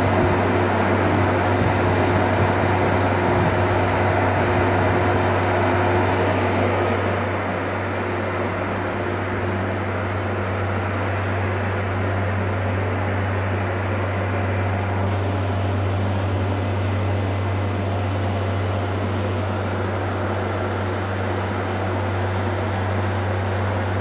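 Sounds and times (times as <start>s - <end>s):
compressor humming: 0.0s - 11.1s
fan-like rushing noise: 0.0s - 24.0s.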